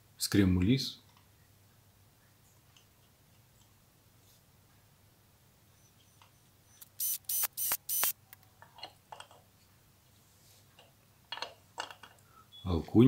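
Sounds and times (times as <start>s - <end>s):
wrench metallic clicks: 6.8s - 8.2s.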